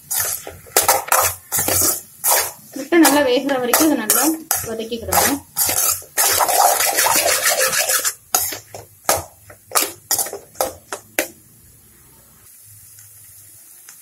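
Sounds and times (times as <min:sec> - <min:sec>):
metal spoon scraping metal pan: 0:00.0 - 0:08.7.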